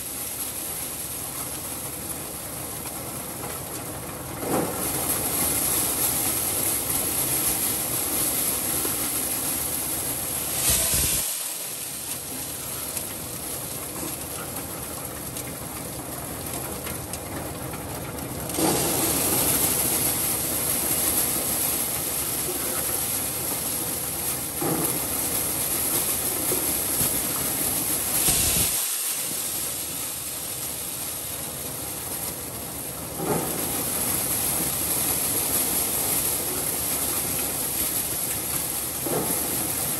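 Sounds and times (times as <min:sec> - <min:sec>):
maize sheller running: 0:00.0 - 0:39.9
corn kernels rattling into metal basin: 0:04.4 - 0:17.2, 0:18.5 - 0:39.9.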